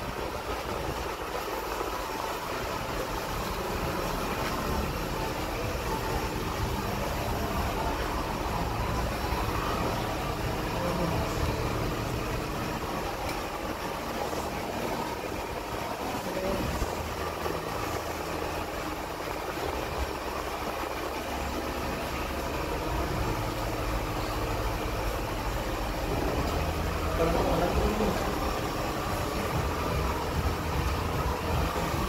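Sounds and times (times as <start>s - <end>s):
low mechanical hum: 0.0s - 32.0s
noisy background: 0.0s - 32.0s.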